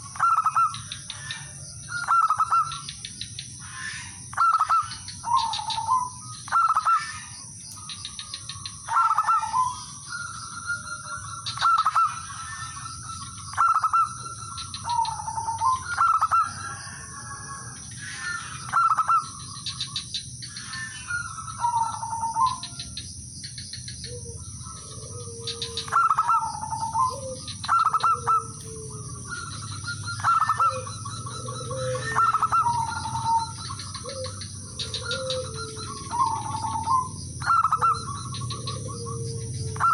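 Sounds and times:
doves cooing: 0.0 - 39.9
lower-pitched coos: 24.1 - 39.9.

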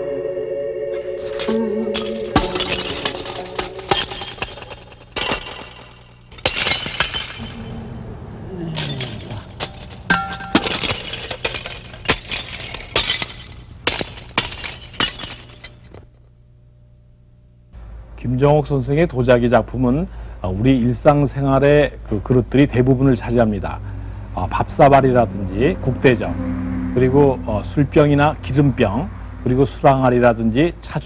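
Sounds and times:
porcelain smashing onto shards: 1.2 - 7.8, 8.7 - 16.0.

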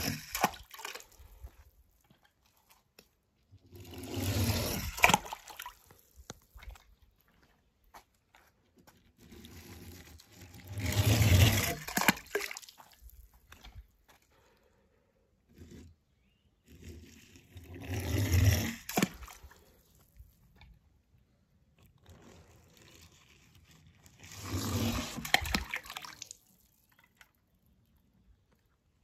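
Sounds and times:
water splashes: 0.0 - 1.6, 3.8 - 6.9, 10.6 - 13.8, 18.0 - 19.9, 24.3 - 27.3.

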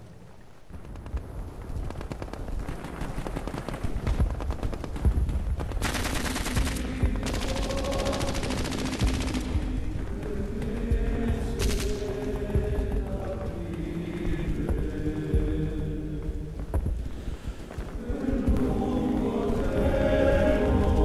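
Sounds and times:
rapid machine-gun fire: 1.8 - 10.0
sustained music tones: 6.6 - 21.0.

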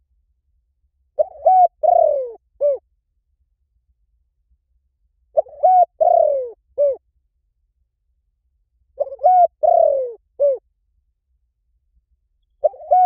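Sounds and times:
dove cooing: 1.2 - 2.8, 5.4 - 7.0, 9.0 - 10.6, 12.6 - 13.0.

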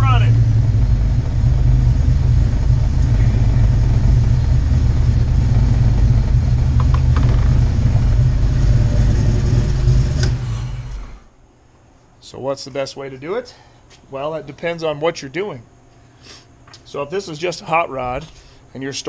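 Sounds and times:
car engine idling: 0.0 - 11.3.

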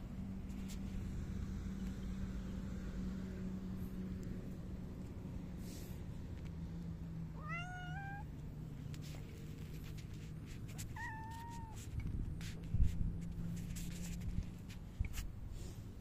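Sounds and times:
cat meowing: 7.4 - 8.3, 10.8 - 11.9.

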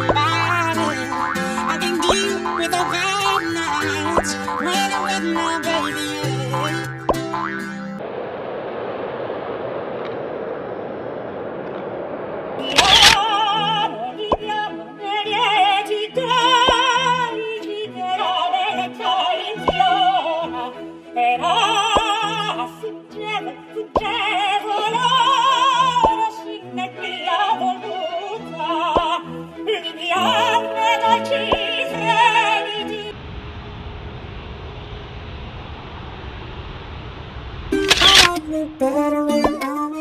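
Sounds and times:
operatic singing: 0.0 - 7.1, 12.6 - 33.1, 38.0 - 40.0
sharp click: 12.6 - 13.2, 37.8 - 38.4
orchestral music: 28.8 - 33.1.

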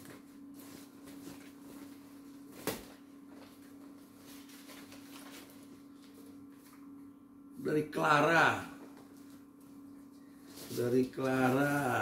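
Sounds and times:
shopping bag rustling: 10.4 - 12.0.

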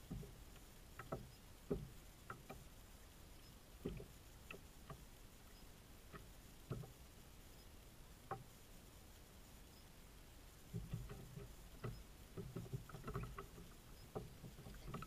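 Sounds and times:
waves lapping against kayak hull: 0.0 - 2.8, 3.7 - 5.2, 6.0 - 7.1, 10.6 - 15.0.

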